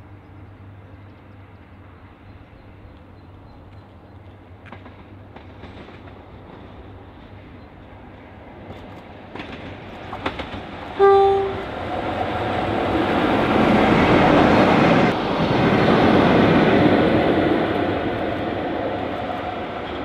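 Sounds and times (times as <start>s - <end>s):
locomotive horn blast: 11.0s - 11.8s.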